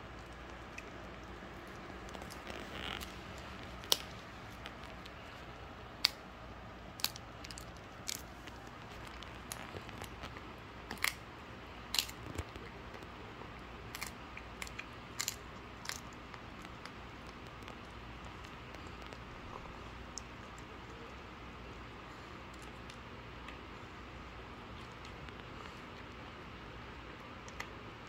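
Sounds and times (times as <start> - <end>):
dog gnawing bone: 0.0 - 5.4, 6.9 - 27.8
bone crunching: 10.9 - 11.2, 11.9 - 12.7, 13.9 - 19.2.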